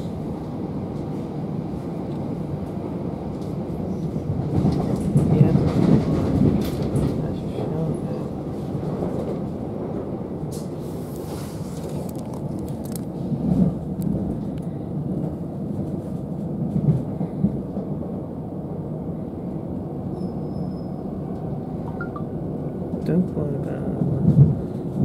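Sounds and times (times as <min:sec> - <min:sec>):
train wheels rumbling on rail: 0:00.0 - 0:25.0
train clicks and knocks: 0:02.1 - 0:18.0, 0:22.8 - 0:25.0.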